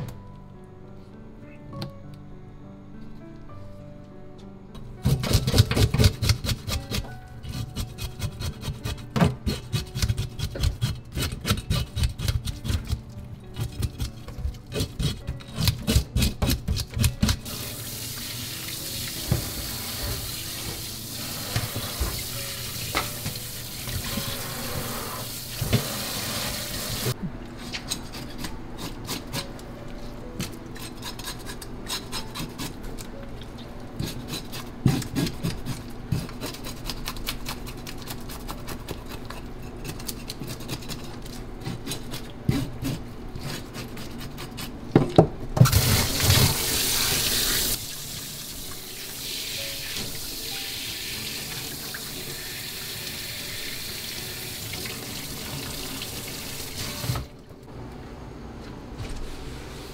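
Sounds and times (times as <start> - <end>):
knife scraping fish scales: 5.0 - 17.5, 27.6 - 29.5, 30.4 - 32.8, 34.0 - 44.8
scraping fish in a steel sink: 5.0 - 17.8, 30.4 - 33.0, 34.0 - 44.8
tap running: 19.0 - 25.0.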